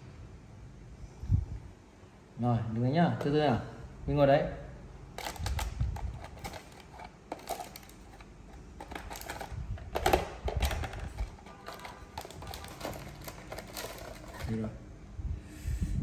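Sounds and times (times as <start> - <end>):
packaging rustling: 5.1 - 14.7
small boxes knocking against plastic: 5.2 - 14.6.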